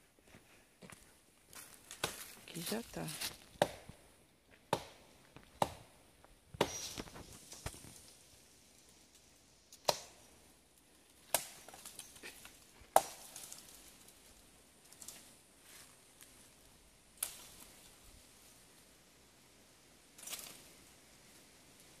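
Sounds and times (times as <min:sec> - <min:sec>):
machete chopping brush: 0:01.9 - 0:04.0, 0:04.7 - 0:05.9, 0:06.6 - 0:07.9, 0:09.8 - 0:10.2, 0:11.3 - 0:13.6.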